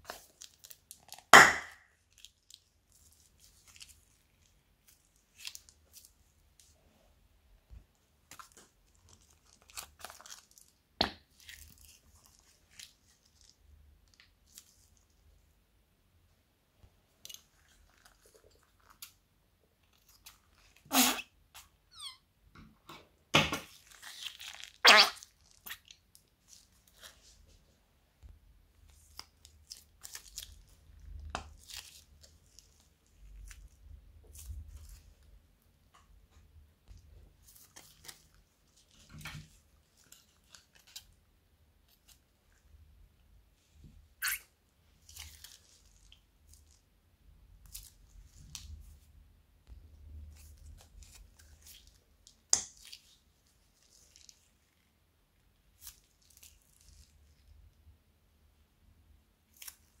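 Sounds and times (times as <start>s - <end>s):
plastic bags crinkling: 8.3s - 13.6s, 23.7s - 27.1s.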